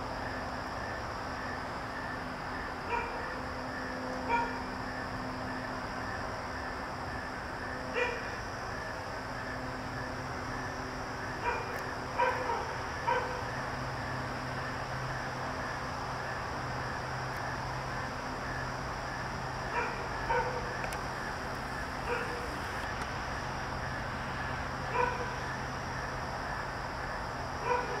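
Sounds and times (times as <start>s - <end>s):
background hum and hiss: 0.0s - 28.0s
dog barking: 2.9s - 3.3s, 4.3s - 4.6s, 8.0s - 8.3s, 11.4s - 13.4s, 19.7s - 20.7s, 22.1s - 22.5s, 24.9s - 25.4s, 27.6s - 28.0s.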